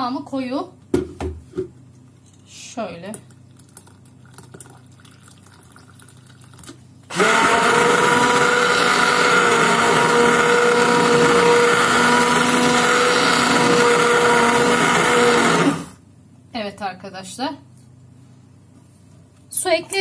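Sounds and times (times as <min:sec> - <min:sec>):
stick blender motor hum: 0:07.1 - 0:16.0.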